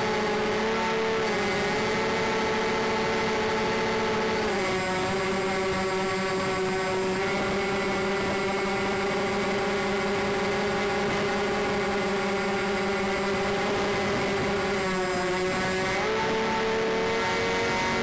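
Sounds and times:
model plane motors droning: 0:00.0 - 0:18.0.

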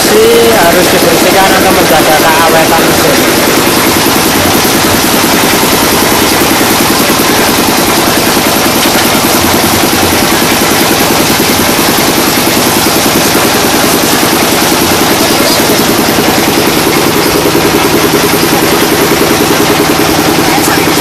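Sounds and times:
engine chugging: 0:00.0 - 0:21.0
water washing machine: 0:00.0 - 0:21.0.

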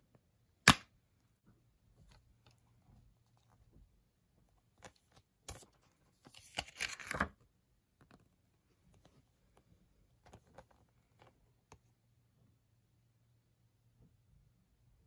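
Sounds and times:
paper insert rustling: 0:04.8 - 0:07.4.

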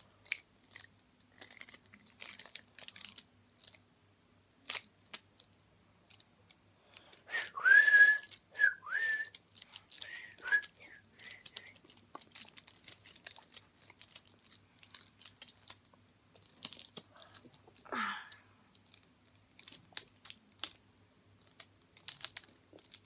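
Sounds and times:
plastic puzzle segments clicking: 0:00.2 - 0:03.8, 0:09.2 - 0:17.8, 0:18.7 - 0:20.8, 0:21.4 - 0:23.0.

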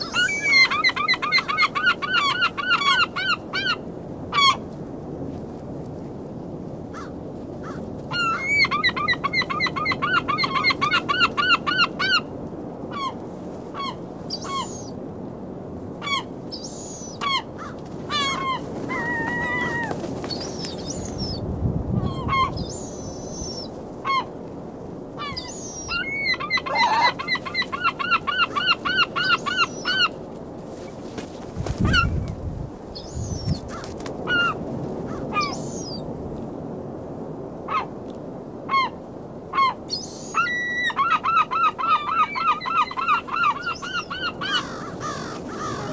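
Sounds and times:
gulls laughing calls: 0:00.0 - 0:03.8, 0:16.1 - 0:21.4, 0:25.2 - 0:30.2, 0:38.7 - 0:45.9.

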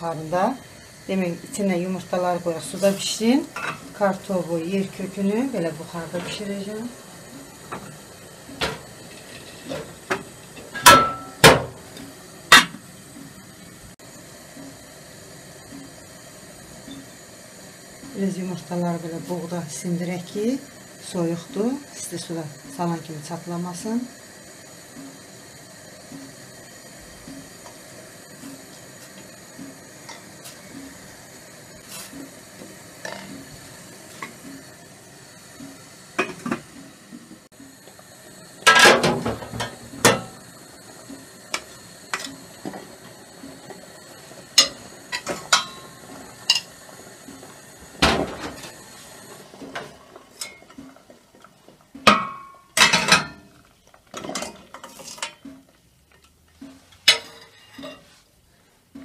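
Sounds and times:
metal pot and spoon clanking: 0:03.5 - 0:03.9, 0:08.6 - 0:12.8, 0:38.6 - 0:40.4, 0:44.5 - 0:46.7, 0:49.8 - 0:51.0, 0:51.9 - 0:58.1.

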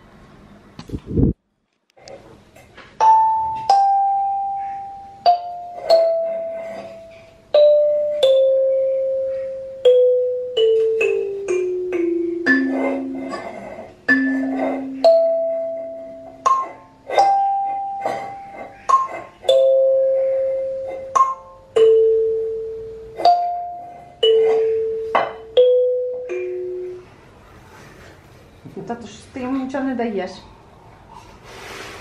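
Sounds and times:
slow melody of struck notes: 0:03.0 - 0:18.3.

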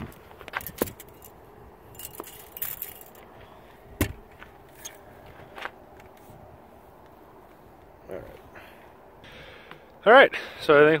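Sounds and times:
heavy thud: 0:04.0 - 0:04.3.

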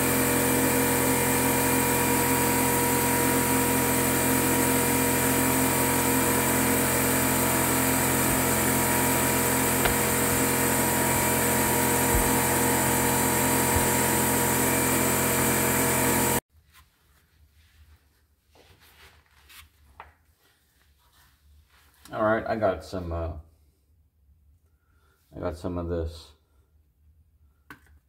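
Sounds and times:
fluid extraction pump droning: 0:00.0 - 0:16.4.

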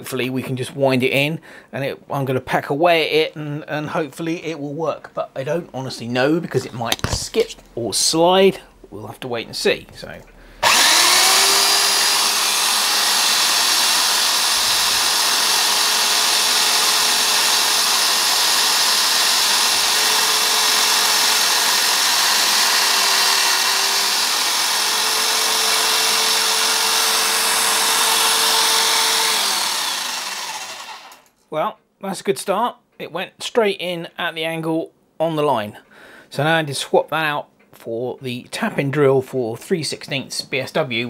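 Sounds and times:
electric drill motor humming: 0:10.6 - 0:31.3.

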